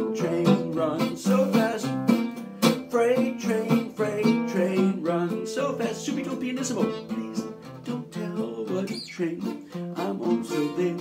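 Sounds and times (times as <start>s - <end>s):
acoustic guitar: 0.0s - 11.0s
man singing: 0.0s - 11.0s.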